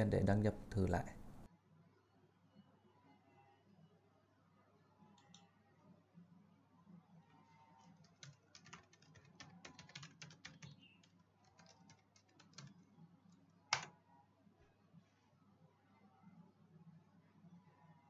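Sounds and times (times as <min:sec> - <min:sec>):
quiet keyboard typing: 0:07.8 - 0:13.9.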